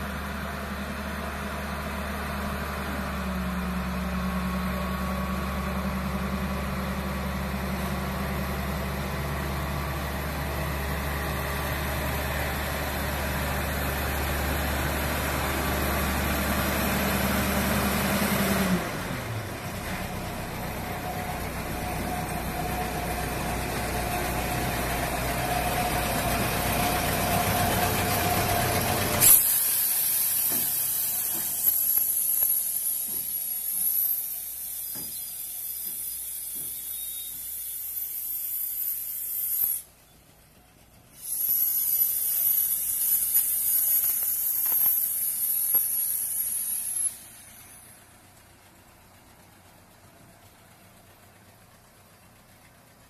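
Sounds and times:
diesel locomotive rumbling: 0.0s - 53.0s
train wheels clicking: 19.9s - 53.0s
steady squeal: 20.6s - 40.2s.

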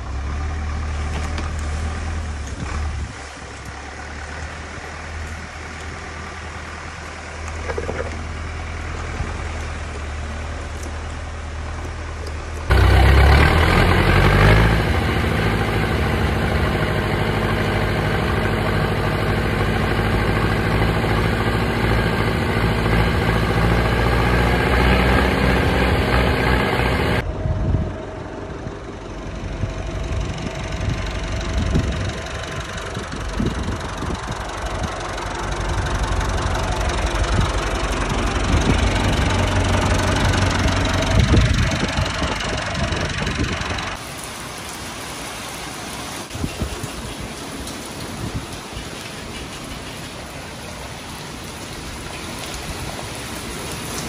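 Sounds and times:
heavy rain on concrete: 0.0s - 27.2s, 31.7s - 54.0s
tractor diesel engine running: 0.0s - 44.7s.

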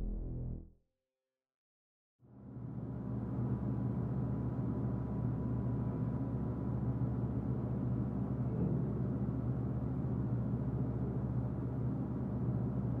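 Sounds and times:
low rumbling drone: 0.0s - 0.7s.

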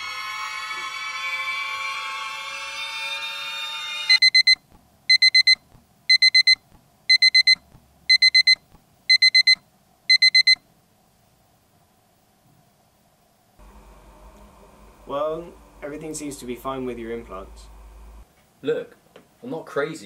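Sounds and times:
digital alarm clock beeping: 4.1s - 10.6s.

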